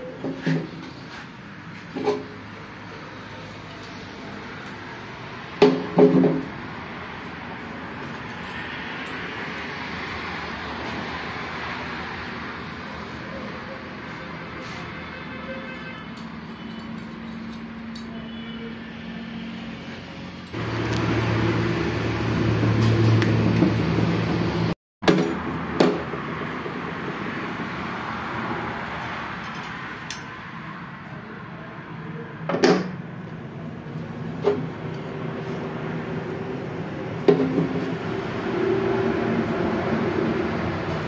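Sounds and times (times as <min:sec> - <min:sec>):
metal engine parts clinking: 0:16.1 - 0:18.4.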